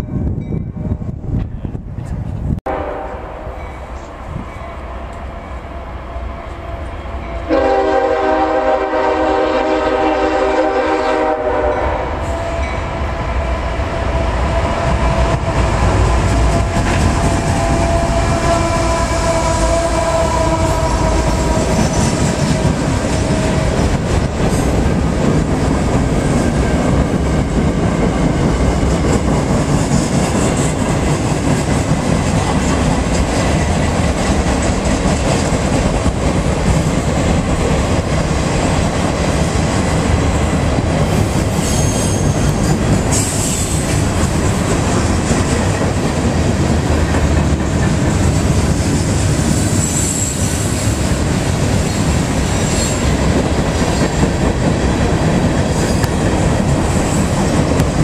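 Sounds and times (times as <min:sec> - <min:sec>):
freight train horn: 0:02.7 - 0:23.8
freight cars rumbling on rails: 0:03.6 - 0:58.0.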